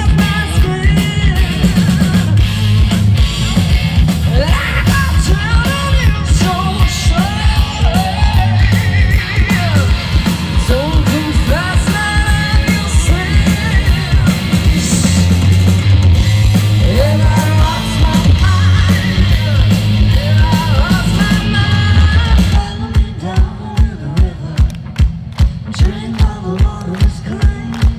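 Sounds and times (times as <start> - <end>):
hard rock band playing live: 0.0 - 27.9
woman singing: 16.8 - 24.7.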